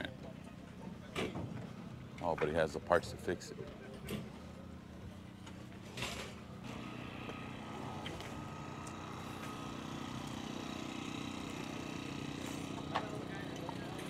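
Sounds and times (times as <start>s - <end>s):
vehicle engine running: 4.3s - 14.0s.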